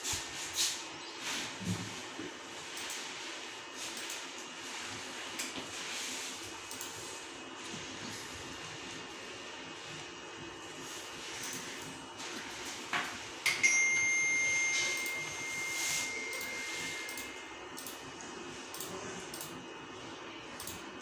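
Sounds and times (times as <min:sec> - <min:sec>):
computer mouse clicking: 0:06.7 - 0:07.0, 0:17.1 - 0:18.0, 0:18.7 - 0:19.6, 0:20.6 - 0:20.8
bell-like ding: 0:13.5 - 0:17.3.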